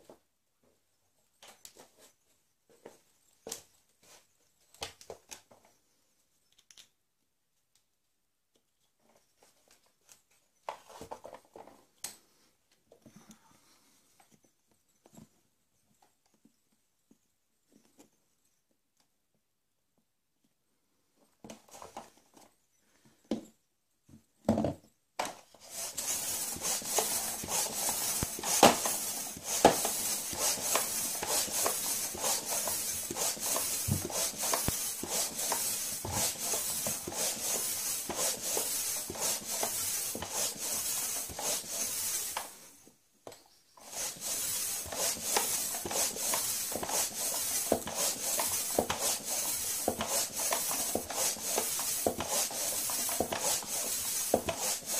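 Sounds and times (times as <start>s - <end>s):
ball pump strokes with hissing air: 25.6s - 42.8s, 43.7s - 54.9s.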